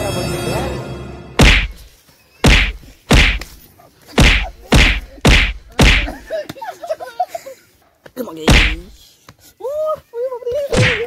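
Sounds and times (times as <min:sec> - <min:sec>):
whacks of kicks and blows: 0:01.4 - 0:03.6, 0:04.2 - 0:06.2, 0:08.5 - 0:08.9, 0:10.7 - 0:11.0.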